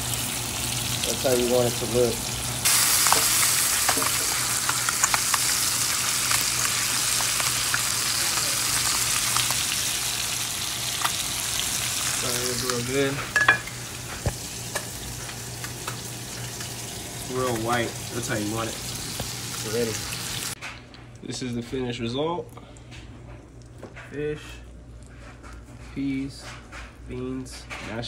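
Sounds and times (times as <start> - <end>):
fish sizzling in oil: 0.0 - 20.6.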